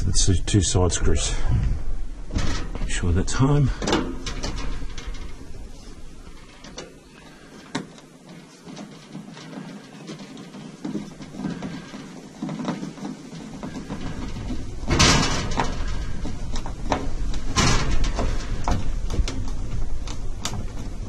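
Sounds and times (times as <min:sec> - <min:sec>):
low rumble: 0:00.0 - 0:06.7
scraping rustles: 0:00.0 - 0:21.0.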